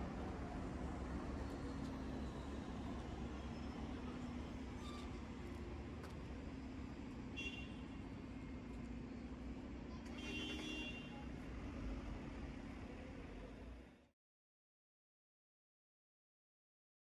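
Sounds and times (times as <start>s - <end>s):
city traffic rumble: 0.0s - 14.1s.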